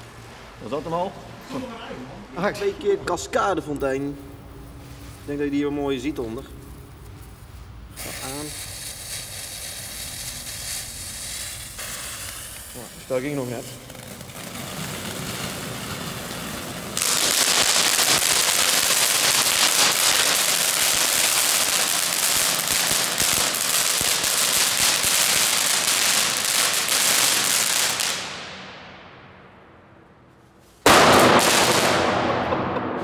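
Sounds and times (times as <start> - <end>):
firework flaring with loud hiss: 4.3 - 28.7
firework fountains hissing and crackling: 4.8 - 28.6.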